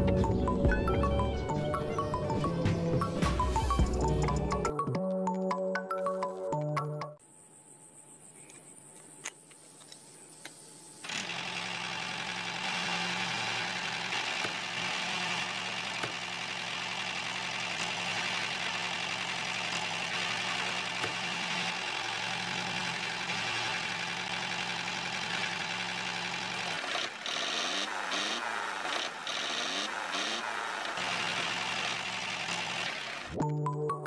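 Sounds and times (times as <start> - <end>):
small electric motor whirring: 11.0 - 33.4.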